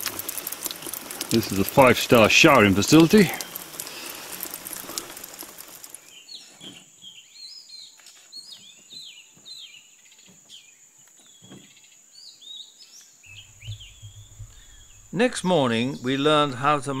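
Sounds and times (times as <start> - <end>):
birds chirping: 0.4 - 17.0.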